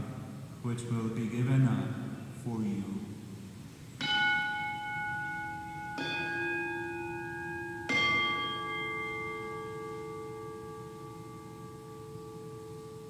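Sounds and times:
altar bells ringing: 4.0s - 13.0s.

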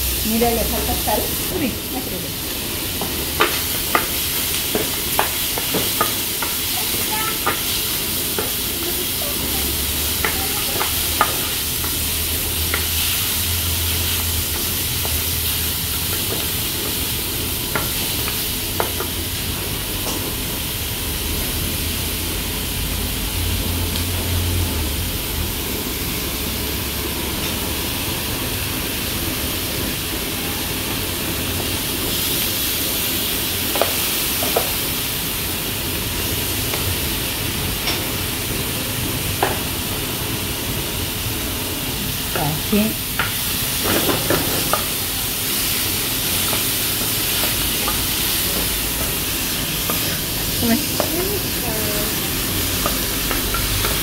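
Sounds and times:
seafood sizzling in frying pan: 0.0s - 54.0s
spoon tapping against pan: 10.2s - 12.0s.

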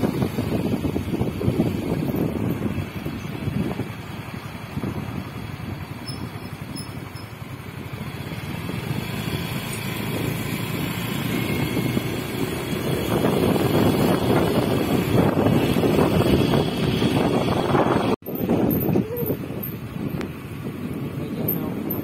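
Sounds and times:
motor scooter engine running: 0.0s - 20.6s
wind rushing on microphone: 0.0s - 22.0s.

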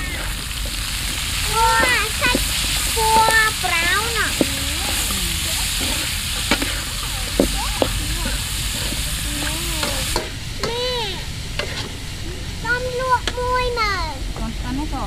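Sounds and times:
food sizzling in a pan: 0.0s - 15.0s
stirring clicks: 0.6s - 10.3s.

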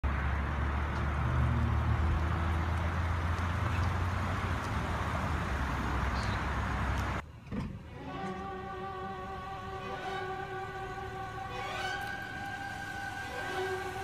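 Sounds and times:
vehicle engine and tyres rumbling: 0.0s - 14.0s.

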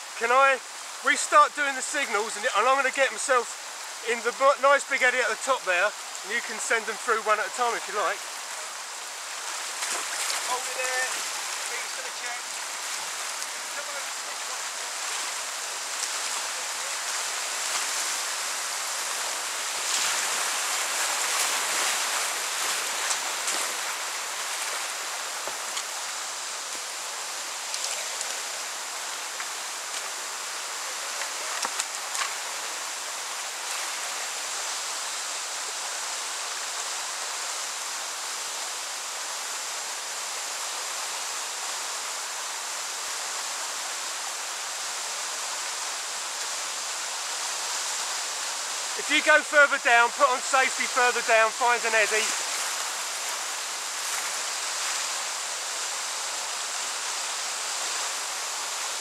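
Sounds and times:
whitewater rapids rushing: 0.0s - 59.0s
water splashing: 9.4s - 26.0s, 48.8s - 56.0s.

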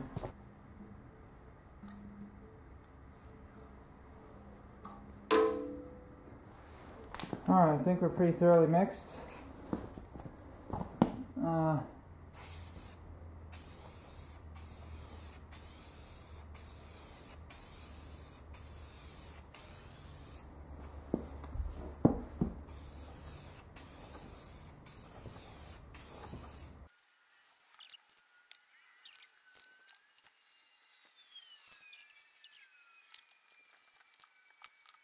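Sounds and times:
spray paint can hissing: 12.3s - 20.5s, 22.6s - 26.9s.

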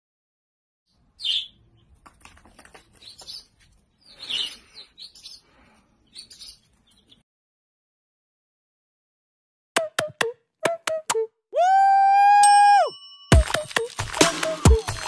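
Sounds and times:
baby chicks peeping: 2.6s - 7.2s.

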